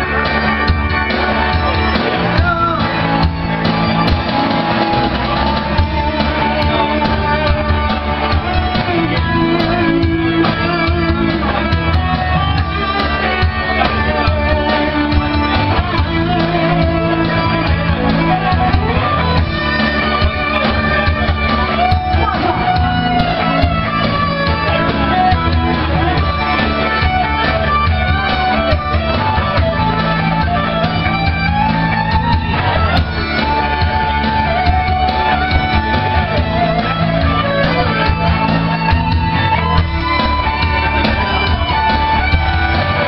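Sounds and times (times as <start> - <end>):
electric guitar: 0.0 - 43.0
live rock band playing: 0.0 - 43.0.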